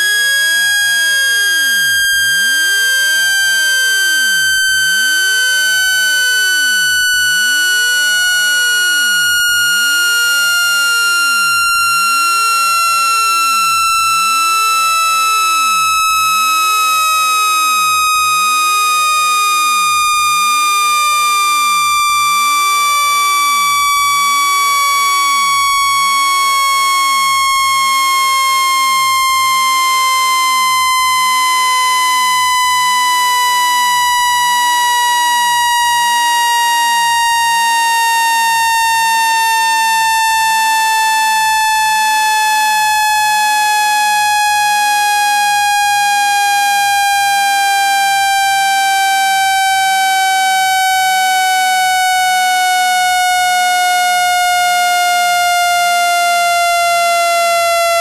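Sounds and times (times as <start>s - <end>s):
electronic tone gliding down: 0.0s - 44.0s.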